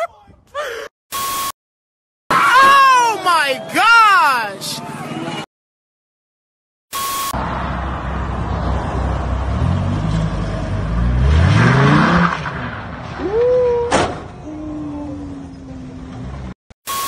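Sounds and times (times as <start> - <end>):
sports car engine revving: 9.3 - 13.0.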